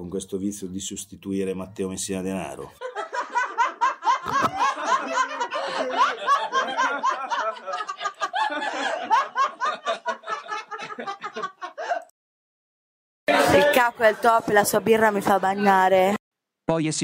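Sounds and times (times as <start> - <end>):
people laughing: 2.8 - 12.1, 13.3 - 16.1.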